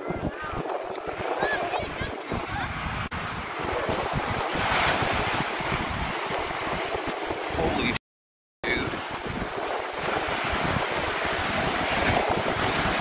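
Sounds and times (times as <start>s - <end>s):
surf breaking on beach: 0.0s - 8.0s, 8.7s - 13.0s
wind buffeting microphone: 0.0s - 8.0s, 8.6s - 13.0s.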